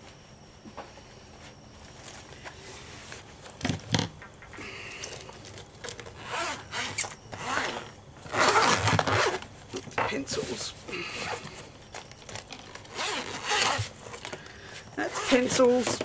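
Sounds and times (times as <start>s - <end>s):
pencil case zipper opening: 6.2s - 9.4s, 12.8s - 13.9s.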